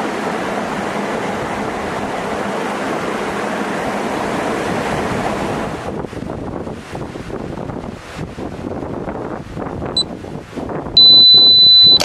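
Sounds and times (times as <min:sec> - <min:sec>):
waterfall roaring: 0:00.0 - 0:05.9.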